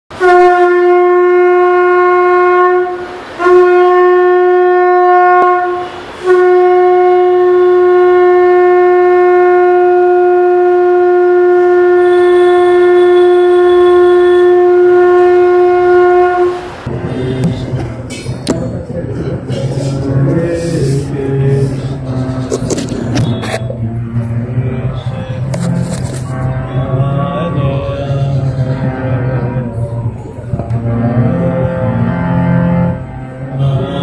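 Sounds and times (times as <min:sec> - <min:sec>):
conch shell blasts: 0:00.1 - 0:17.6.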